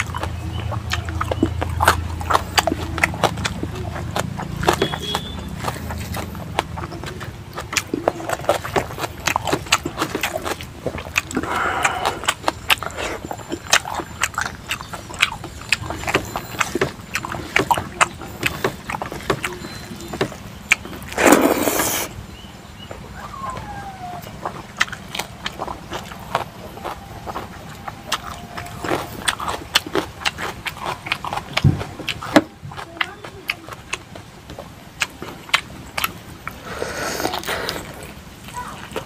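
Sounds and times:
wet chewing and lip smacks: 0.0 - 39.0
loud hiss-like burst: 21.2 - 22.2.

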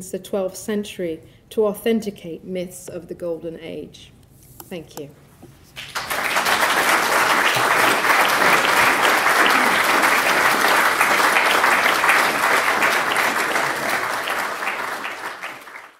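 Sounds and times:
audience applause: 5.8 - 15.9.

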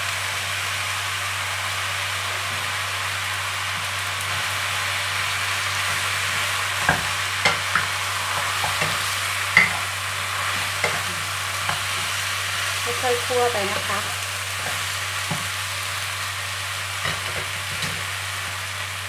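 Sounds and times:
food sizzling in a frying pan: 0.0 - 19.0
spatula stirring: 5.7 - 13.0, 13.8 - 15.9
spatula knocking on pan: 6.8 - 9.8, 14.6 - 15.6.

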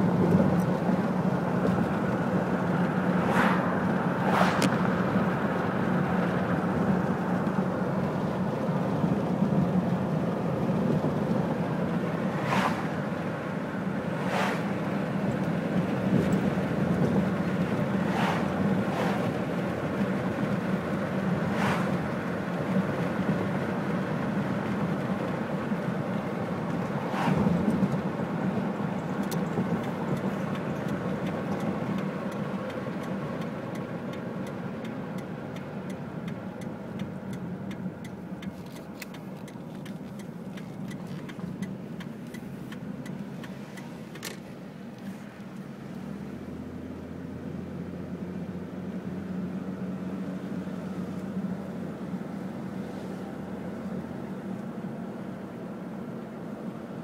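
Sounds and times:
car engine and tyre rumble: 0.0 - 57.0
faint ticks: 29.2 - 44.4.

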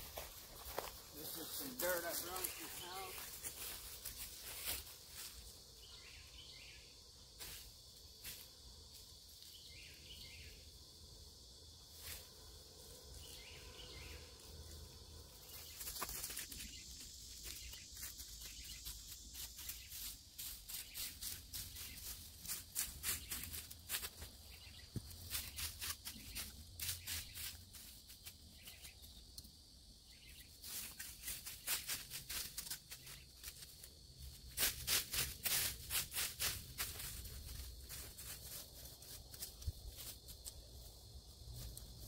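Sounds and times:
rake scraping dry leaves: 0.0 - 5.3, 34.4 - 40.2
insects: 0.0 - 42.0.

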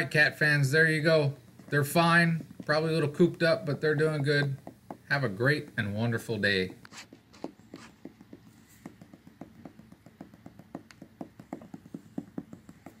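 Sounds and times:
fingers tapping on glass: 7.4 - 13.0.

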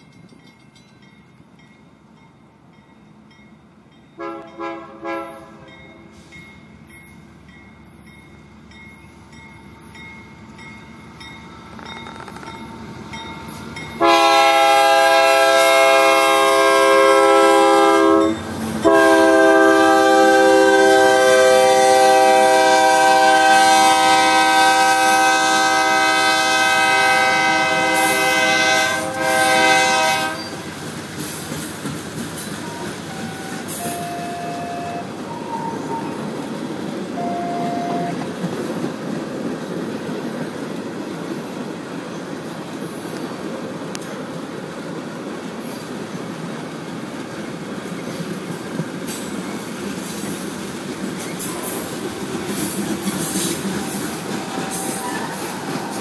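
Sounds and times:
train wheels clattering on rails: 0.0 - 3.0, 5.2 - 16.7, 18.0 - 56.0
diesel freight train rumble: 0.0 - 56.0
locomotive air horn blasts: 4.2 - 6.2, 14.0 - 30.7, 32.6 - 36.2, 37.2 - 38.2.

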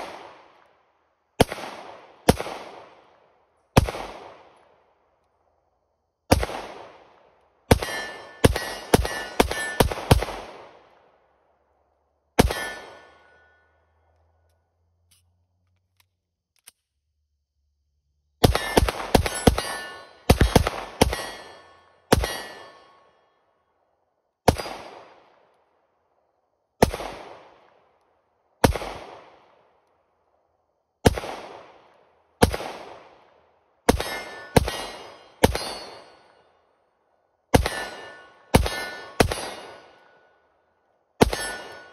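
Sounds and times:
pistol shots with ringing tail: 1.4 - 3.1, 3.7 - 4.6, 6.3 - 11.0, 12.4 - 14.0, 18.4 - 23.2, 24.4 - 25.4, 28.6 - 29.4, 31.0 - 31.8, 32.4 - 33.2, 33.8 - 36.5, 37.5 - 40.5, 41.2 - 41.9.

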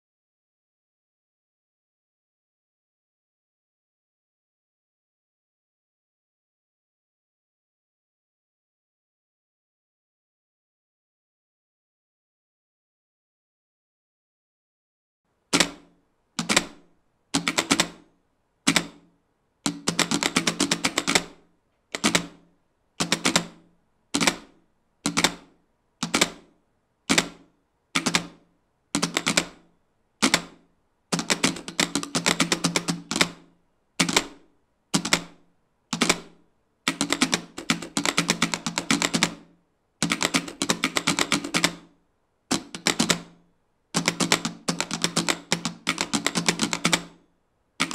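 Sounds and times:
telegraph keys clicking: 17.4 - 18.0, 18.7 - 19.0, 19.7 - 22.4, 23.0 - 23.6, 25.1 - 26.4, 29.0 - 29.6, 31.2 - 33.4, 35.0 - 35.4, 36.9 - 39.4, 40.0 - 41.9, 42.5 - 43.4, 44.0 - 47.2.

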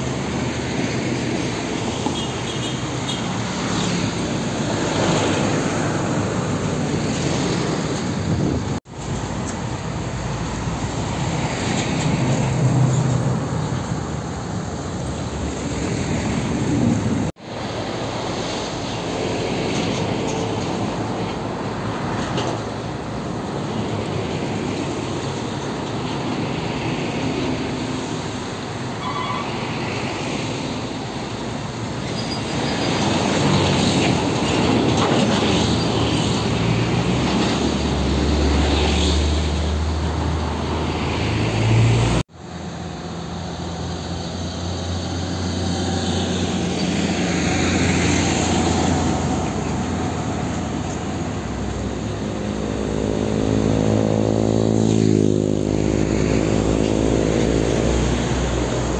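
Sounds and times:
heavy trucks passing: 0.0 - 58.9
tyres on road: 0.0 - 58.9.

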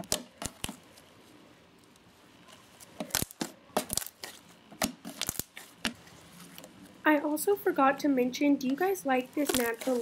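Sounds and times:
slime squishing with sticky pops: 0.0 - 0.8, 2.9 - 6.0.

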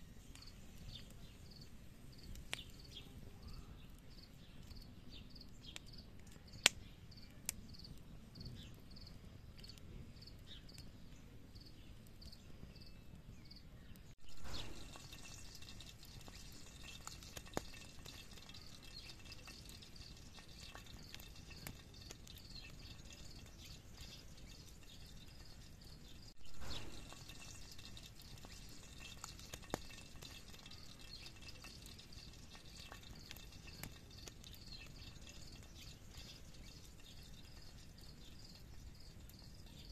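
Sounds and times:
campfire crackling and popping: 0.0 - 39.9
fat dripping and sizzling in pan: 14.1 - 39.9.

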